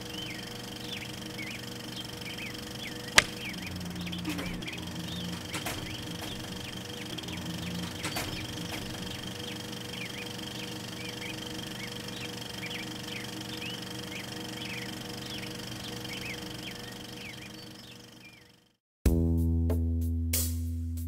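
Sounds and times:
steady low hum: 0.0 - 18.5
sharp click: 3.2 - 3.5.

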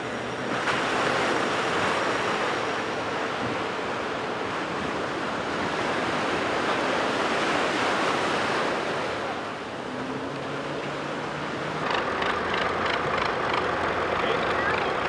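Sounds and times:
ocean surf breaking: 0.0 - 15.0
faint engine hum: 8.6 - 15.0.

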